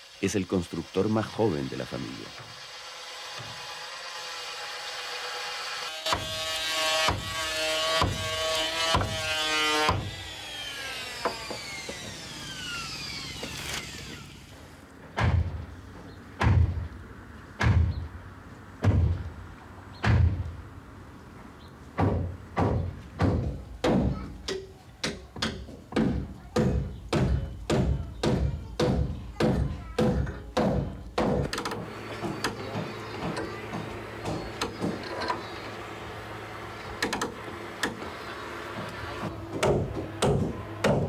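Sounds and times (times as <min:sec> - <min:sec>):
hammer striking wooden hull: 0:06.0 - 0:06.4, 0:07.0 - 0:10.1, 0:16.4 - 0:16.8, 0:17.6 - 0:18.0, 0:20.0 - 0:20.4, 0:22.0 - 0:35.0, 0:39.5 - 0:41.0.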